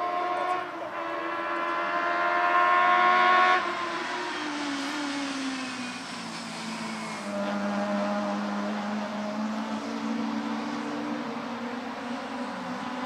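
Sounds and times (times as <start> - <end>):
race car engine accelerating: 1.6 - 13.0
tyres hissing through spray: 3.6 - 13.0.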